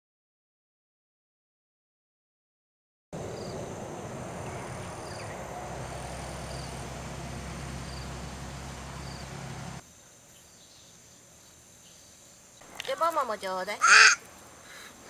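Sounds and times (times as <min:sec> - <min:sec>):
insect buzzing: 0:03.2 - 0:13.0
steady hiss and low hum: 0:03.2 - 0:15.0.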